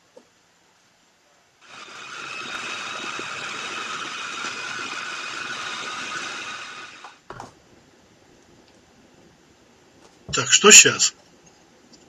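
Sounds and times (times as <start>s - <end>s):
electric chopper running: 1.6s - 7.2s.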